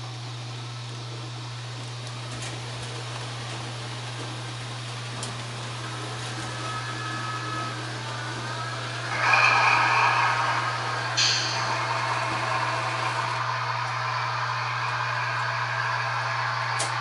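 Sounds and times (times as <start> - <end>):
constant low hum: 0.0 - 17.0
model train running: 0.0 - 17.0
high ringing tone: 9.1 - 16.8.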